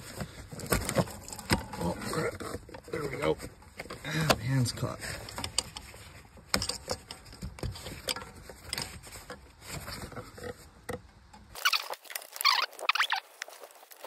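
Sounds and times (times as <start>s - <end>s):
scuffing and rustling: 11.6s - 14.0s.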